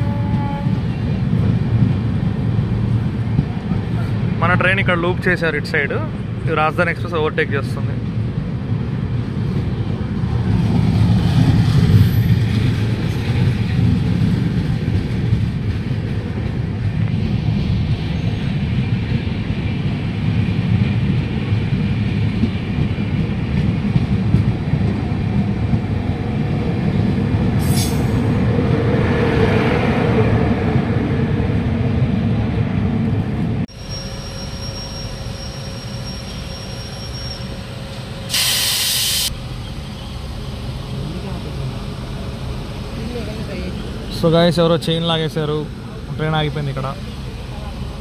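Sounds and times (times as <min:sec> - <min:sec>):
train wheels rumbling: 0:00.0 - 0:48.0
wheel squeal: 0:33.7 - 0:37.9
loud hiss: 0:38.2 - 0:39.3.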